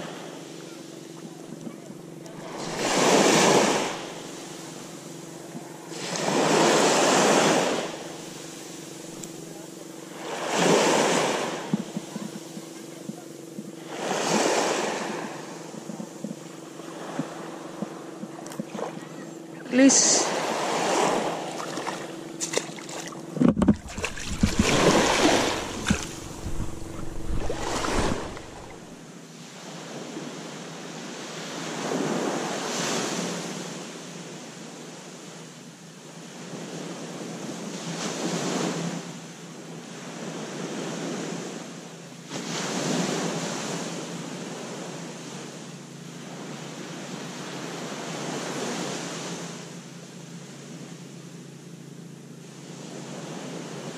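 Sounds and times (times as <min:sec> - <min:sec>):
small waves breaking on beach: 0:00.0 - 0:35.4, 0:36.0 - 0:49.9, 0:52.4 - 0:53.9
wind buffeting microphone: 0:23.3 - 0:29.0.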